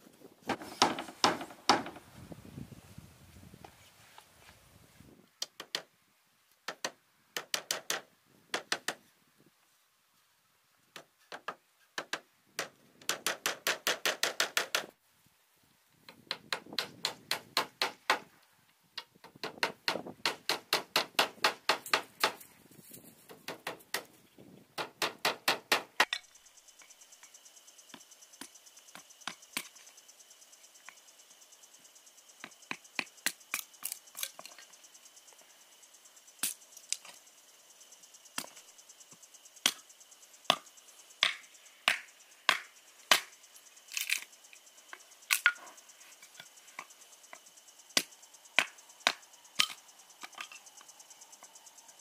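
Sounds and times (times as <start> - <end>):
crickets chirping: 0.0 - 4.6, 16.2 - 52.0
hammer nailing wooden boards: 0.5 - 2.0, 6.7 - 9.0, 11.0 - 14.9, 16.2 - 18.3, 19.2 - 22.4, 24.8 - 26.2.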